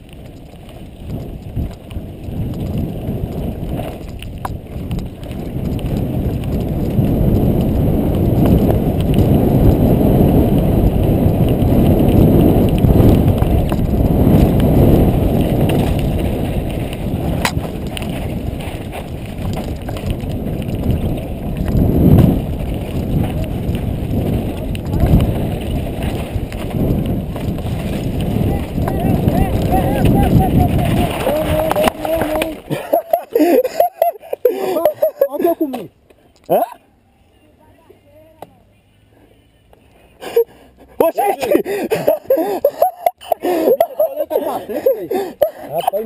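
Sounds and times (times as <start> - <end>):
wind rushing on microphone: 0.0 - 35.9
bike tyre and frame rattle: 0.0 - 36.6.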